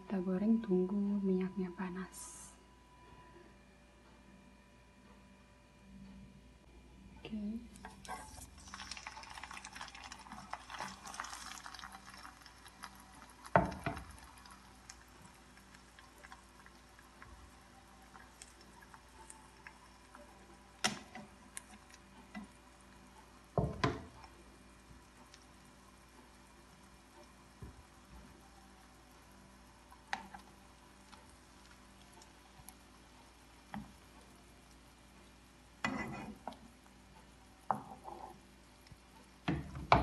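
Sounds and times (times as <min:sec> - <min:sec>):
food sizzling in oil: 0:07.7 - 0:40.0
knocks against a pan: 0:39.5 - 0:40.0.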